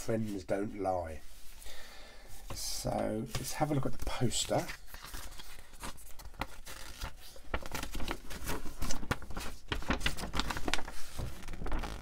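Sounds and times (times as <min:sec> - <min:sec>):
paper rustling and crinkling: 0:03.3 - 0:12.0.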